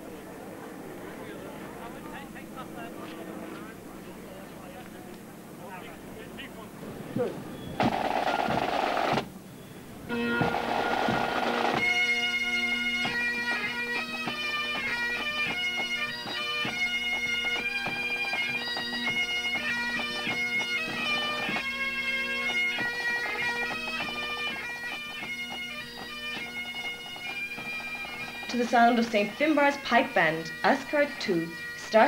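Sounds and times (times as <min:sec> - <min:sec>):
bagpipe drones: 0:07.7 - 0:32.0
bagpipe chanters playing tune: 0:09.8 - 0:32.0.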